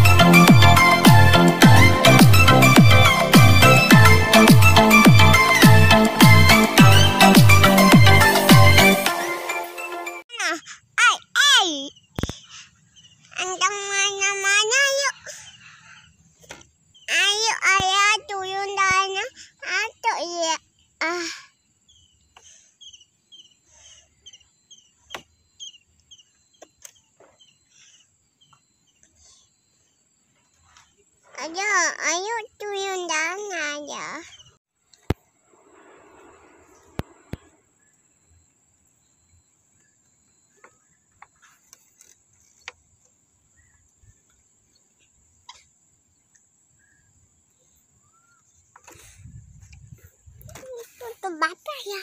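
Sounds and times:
faint steady high whine: 34.8 - 42.7.

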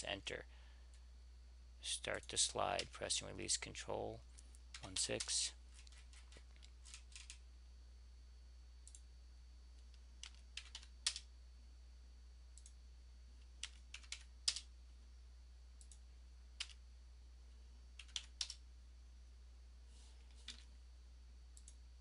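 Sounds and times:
steady low hum: 0.0 - 22.0
keyboard typing: 4.7 - 7.4, 9.8 - 11.3, 13.5 - 14.7, 16.6 - 16.8, 18.0 - 18.6, 20.3 - 20.7.

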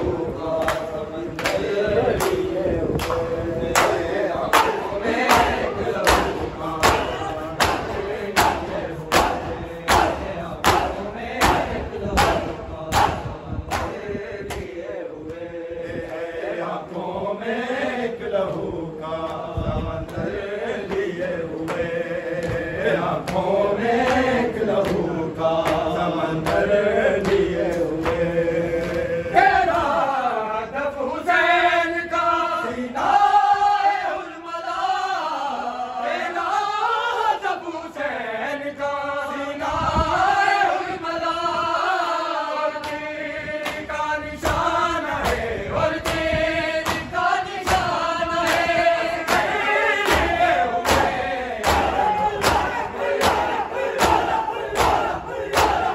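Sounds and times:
men chanting in unison: 0.0 - 55.9
chest-beating slaps: 1.4 - 14.7, 44.4 - 55.9.

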